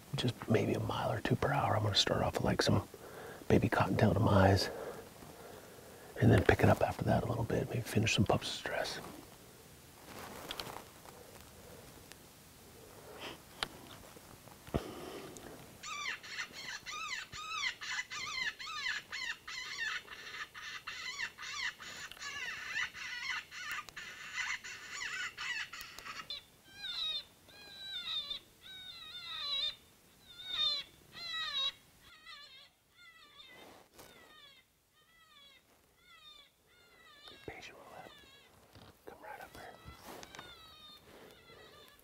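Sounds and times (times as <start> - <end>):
rabbit distress squeals from caller: 15.8 - 38.6, 39.6 - 42.0.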